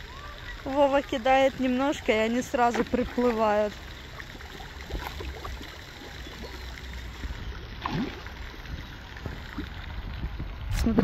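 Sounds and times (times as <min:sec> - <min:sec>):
water splashing and trickling: 0:00.0 - 0:11.0
wind rumble on microphone: 0:07.2 - 0:11.0.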